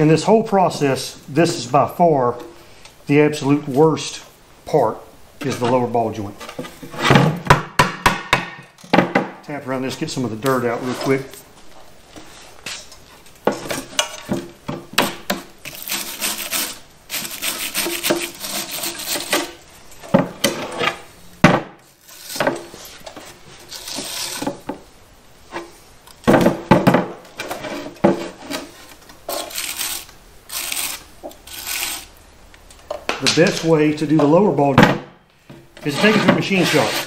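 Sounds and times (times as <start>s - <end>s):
dirt scraped off metal: 35.8s - 37.0s.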